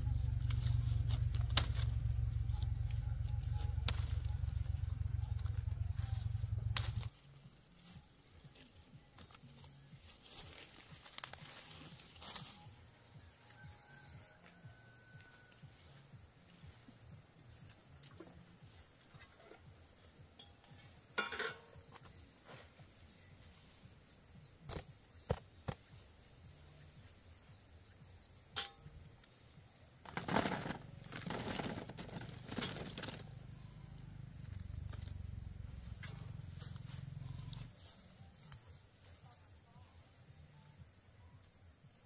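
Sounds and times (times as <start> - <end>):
low rumble: 0.0 - 7.1
insect chirring: 0.0 - 14.0, 23.0 - 42.0.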